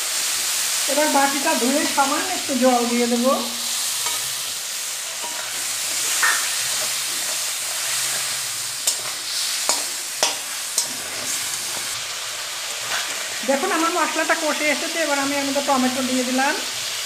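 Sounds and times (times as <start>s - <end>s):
potatoes sizzling in a pan: 0.0s - 17.0s.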